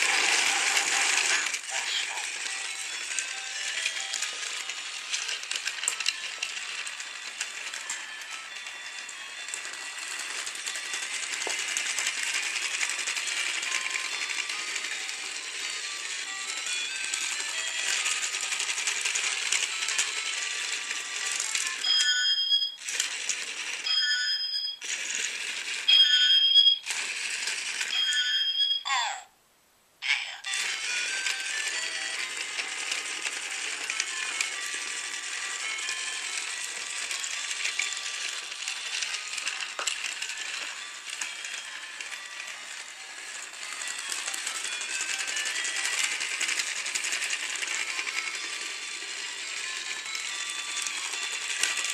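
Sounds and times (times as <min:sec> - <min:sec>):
toy train motor whirring rattle: 0:00.0 - 0:28.8, 0:30.2 - 0:51.9
short high electronic tones: 0:25.9 - 0:26.9.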